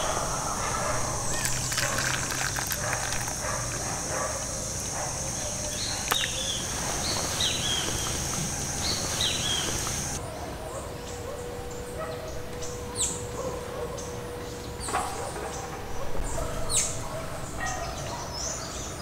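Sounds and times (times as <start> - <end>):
high falling chirps: 0.0 - 10.2
coffee pouring into cup: 1.3 - 3.8.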